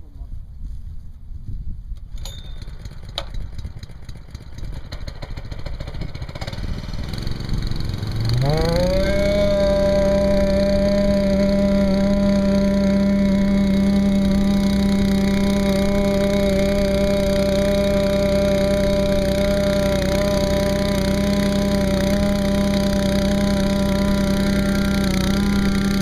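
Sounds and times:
wind noise: 0.0s - 3.8s
vibrator motor humming: 2.2s - 26.0s.

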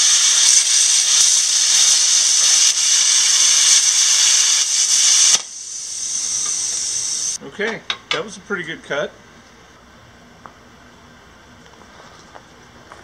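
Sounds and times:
plasma cutter arc hissing: 0.0s - 7.4s
cooling air hiss: 0.0s - 9.7s.

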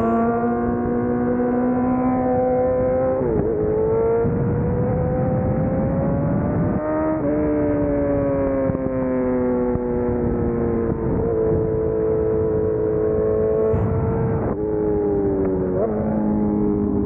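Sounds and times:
motorcycle engine accelerating: 0.0s - 17.0s
wind and road noise: 0.0s - 17.0s.

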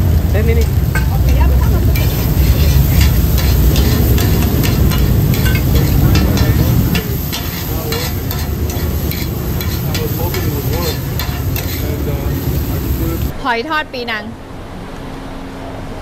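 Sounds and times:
low rumble: 0.0s - 13.4s
oil sizzling: 0.0s - 13.4s
metal spatula scraping iron pan: 0.6s - 12.7s.

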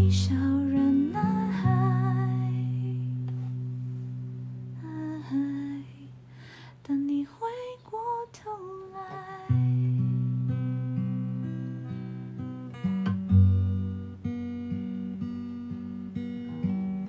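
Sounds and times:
woman singing softly: 0.0s - 3.3s, 4.7s - 6.2s, 6.8s - 11.4s.

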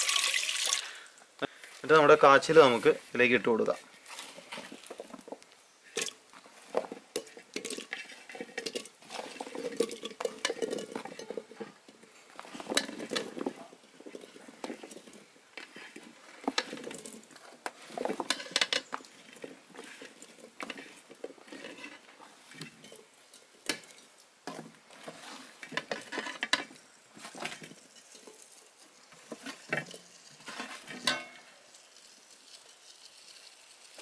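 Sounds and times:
yam chunks clattering into metal pot: 4.4s - 28.5s.

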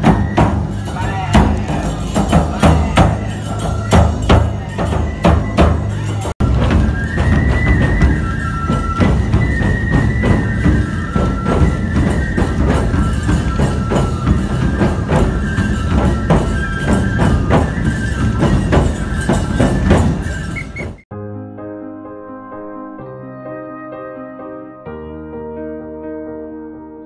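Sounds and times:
taiko drums beaten fast: 0.0s - 20.8s
bamboo flutes high melody: 0.0s - 21.1s
hand cymbals clashing: 0.6s - 6.3s.

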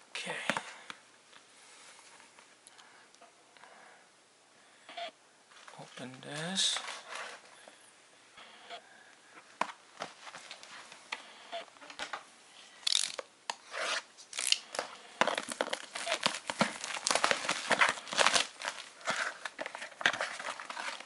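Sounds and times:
packaging rustling: 5.5s - 7.6s, 12.8s - 21.0s
cardboard and plastic tearing: 12.8s - 21.0s.

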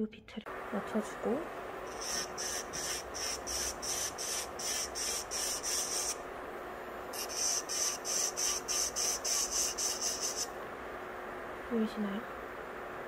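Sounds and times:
faint motor hum: 0.0s - 13.0s
nail drill grinding strokes: 1.9s - 6.2s, 7.2s - 10.5s.

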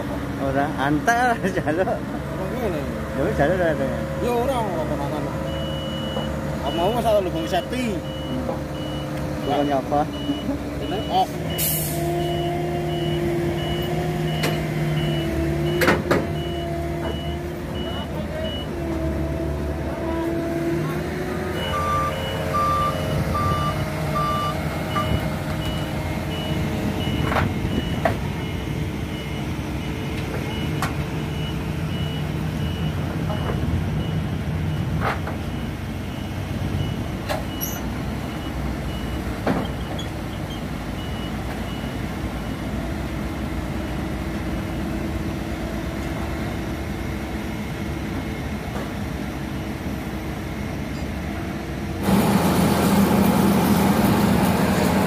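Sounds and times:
diesel machinery running: 0.0s - 55.0s
truck engine running: 0.0s - 55.0s
reversing alarm beeping: 5.4s - 18.8s, 21.5s - 40.0s.

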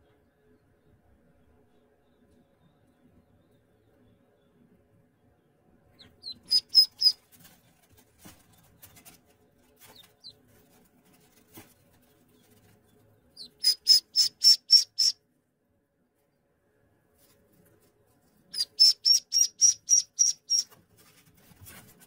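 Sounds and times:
ducklings peeping: 5.9s - 9.2s, 9.8s - 15.2s, 18.5s - 20.8s.

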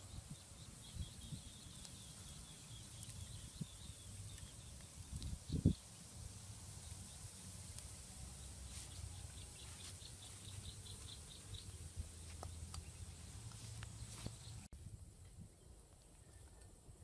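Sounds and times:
bird chirping: 0.0s - 6.1s, 8.3s - 14.7s.

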